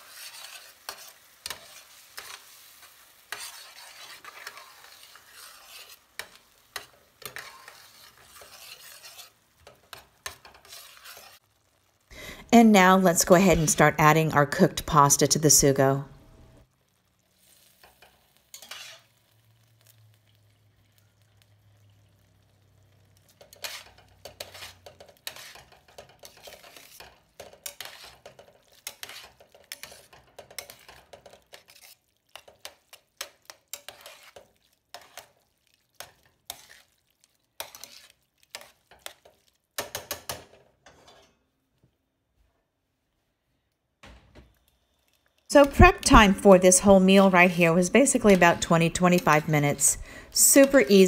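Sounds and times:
utensil scraping a metal pan: 0:00.0 - 0:11.4, 0:17.7 - 0:19.1, 0:23.3 - 0:35.4, 0:36.0 - 0:37.0, 0:37.6 - 0:41.4, 0:45.5 - 0:51.0.

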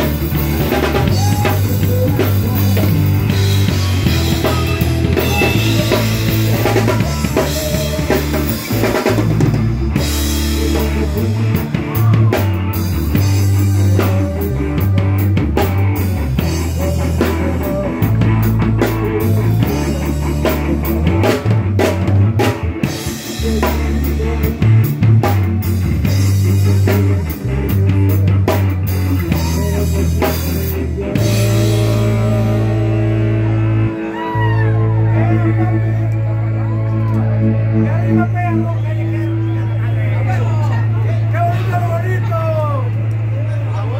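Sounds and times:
drum kit beat: 0:00.0 - 0:36.1
heavy bass line: 0:00.0 - 0:43.9
rock band playing live: 0:00.0 - 0:43.9.

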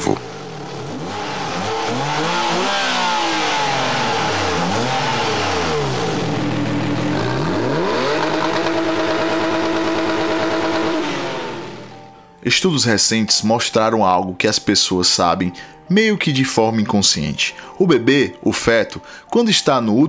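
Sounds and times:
sports car engine revving: 0:00.0 - 0:12.2.

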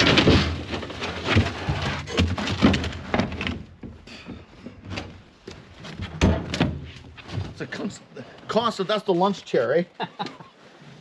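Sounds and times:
knocks and scrapes on metal: 0:00.0 - 0:05.2, 0:05.8 - 0:07.6.

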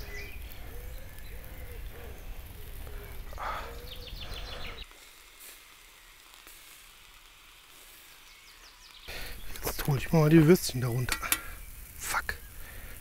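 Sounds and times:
bird calling: 0:00.0 - 0:04.9
sausages sizzling on a grill: 0:00.0 - 0:13.0.

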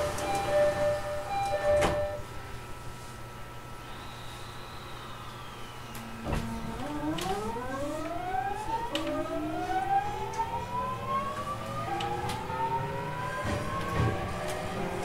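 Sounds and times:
train motors whining: 0:03.8 - 0:15.0.

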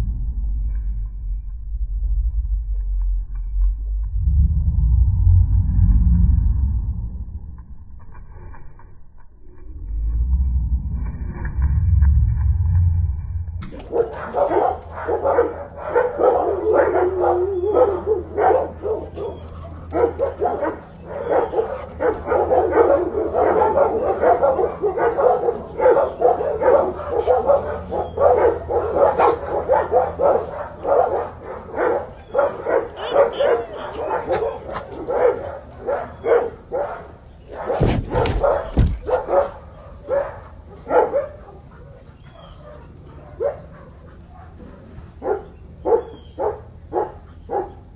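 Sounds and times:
dogs barking and yipping: 0:13.7 - 0:47.9
dull thumps: 0:37.8 - 0:39.2.

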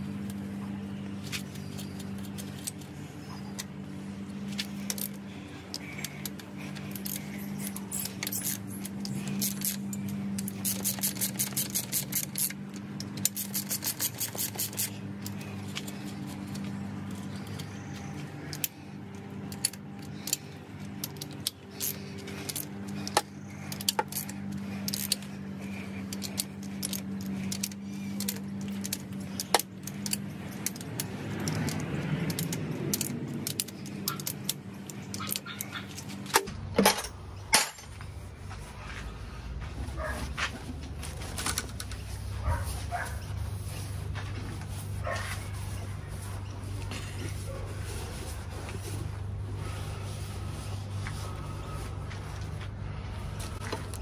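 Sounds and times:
steady low hum: 0:00.0 - 0:54.0
ratchet wrench clicking: 0:04.6 - 0:36.4.

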